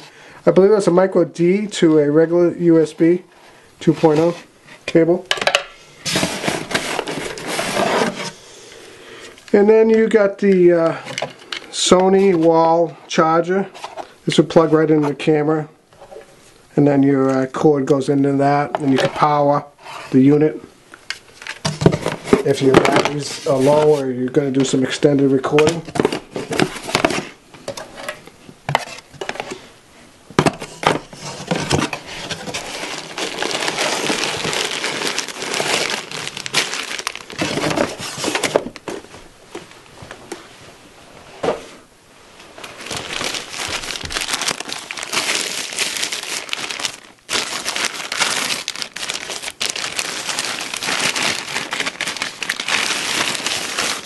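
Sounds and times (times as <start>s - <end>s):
plastic packaging crinkling: 3.8s - 8.4s, 21.1s - 27.3s, 30.6s - 39.7s, 42.5s - 54.0s.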